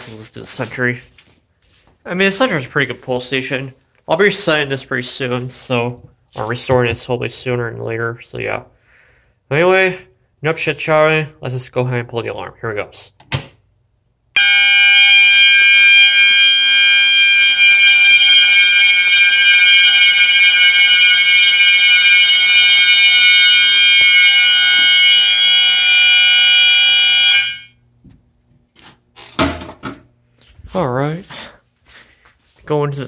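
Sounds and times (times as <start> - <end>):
fire alarm horns continuous tone: 14.4 - 27.8.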